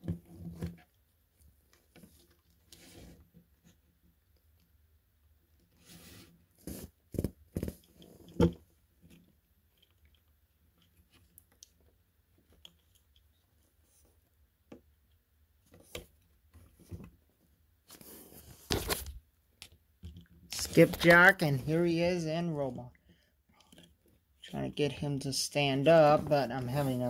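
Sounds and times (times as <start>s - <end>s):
rustling scrape: 5.8s - 6.9s, 25.9s - 27.0s.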